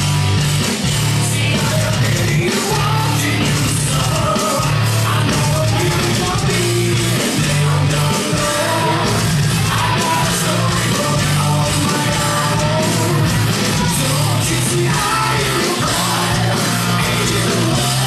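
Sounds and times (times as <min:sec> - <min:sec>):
heavy metal music with shouted vocals: 0:00.0 - 0:18.0.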